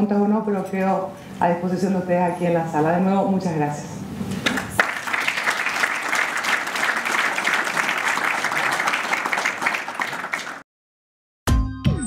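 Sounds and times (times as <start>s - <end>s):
audience applauding: 4.5s - 10.6s.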